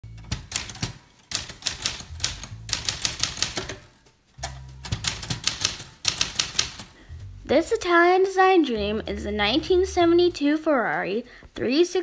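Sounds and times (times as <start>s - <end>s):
typewriter keystrikes: 0.1s - 7.0s
background music with bass line: 2.0s - 2.8s, 4.4s - 5.2s, 7.0s - 8.0s, 8.7s - 10.4s.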